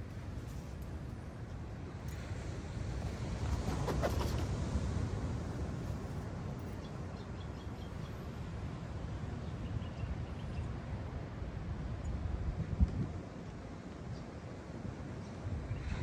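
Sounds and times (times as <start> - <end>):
wind noise on microphone: 9.8 - 13.4, 15.4 - 16.0.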